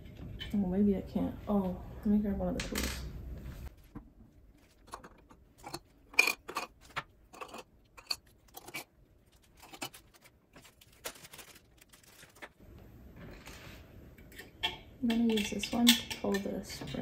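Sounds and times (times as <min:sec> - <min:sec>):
small tools clicking and clattering: 0:04.7 - 0:10.7, 0:14.2 - 0:17.0.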